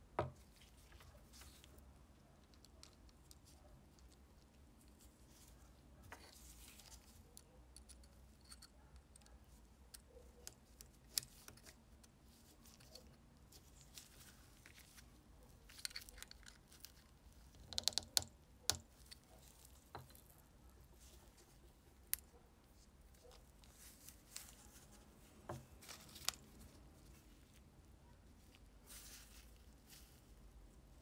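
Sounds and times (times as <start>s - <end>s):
light metal clicks and scrapes: 2.4s - 11.8s.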